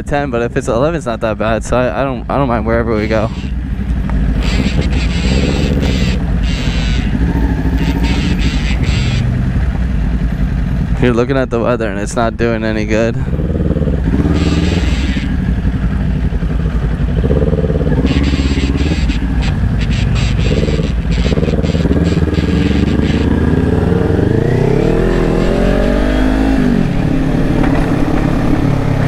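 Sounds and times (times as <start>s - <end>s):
motorcycle engine running: 1.4s - 29.0s
wind rushing over microphone: 25.0s - 29.0s.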